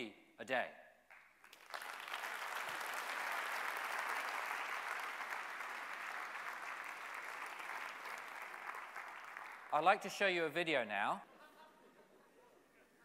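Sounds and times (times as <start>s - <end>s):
audience applauding: 1.1s - 10.0s.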